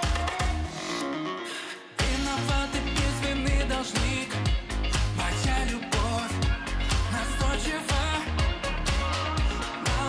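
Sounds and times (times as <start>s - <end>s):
pop dance music: 0.0s - 10.0s.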